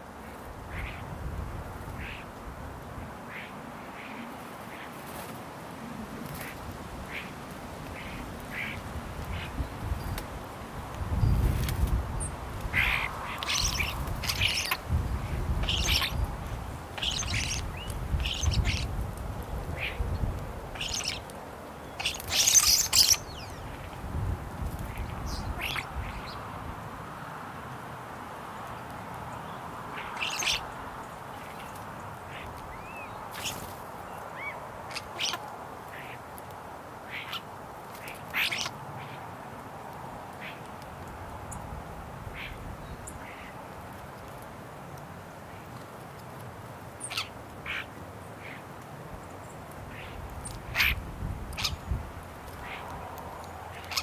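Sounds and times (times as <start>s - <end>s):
starlings calling and clicking: 11.2s - 19.0s, 19.8s - 24.0s, 24.8s - 26.4s, 29.5s - 36.2s, 37.1s - 39.2s, 47.0s - 54.0s.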